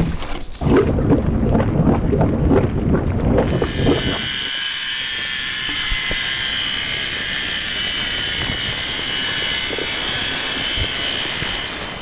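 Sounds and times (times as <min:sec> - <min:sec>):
synthesized rushing noise with high tones: 0:03.4 - 0:12.0.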